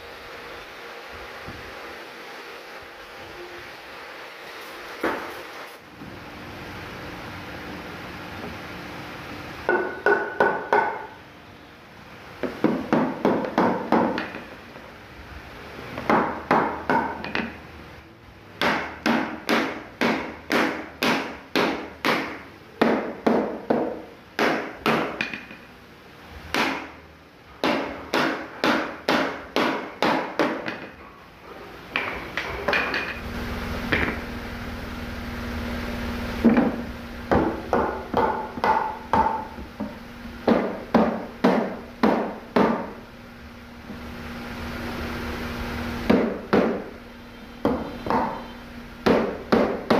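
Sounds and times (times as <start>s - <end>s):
wooden mallet knocking wood: 9.7s - 11.1s, 12.4s - 14.5s, 16.0s - 17.6s, 18.6s - 25.6s, 27.6s - 31.0s, 36.4s - 42.9s, 46.1s - 46.8s, 47.6s - 48.4s, 49.0s - 49.9s
steady low hum: 30.9s - 49.9s.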